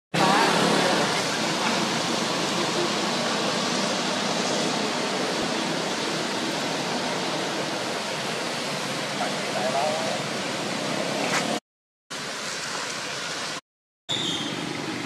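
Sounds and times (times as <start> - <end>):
rain falling: 0.2 - 11.2.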